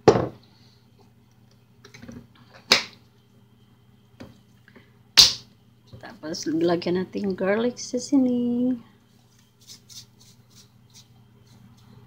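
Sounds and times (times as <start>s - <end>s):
bottles knocking on stone countertop: 0.0s - 0.4s
faint low hum: 0.0s - 12.0s.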